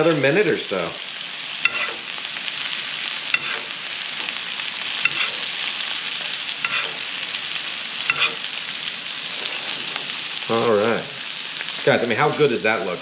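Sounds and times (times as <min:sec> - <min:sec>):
fat sizzling in a skillet: 0:00.0 - 0:13.0
metal spoon clinking against pan: 0:01.6 - 0:02.0, 0:03.3 - 0:03.7, 0:05.0 - 0:05.5, 0:06.2 - 0:07.0, 0:08.1 - 0:08.5.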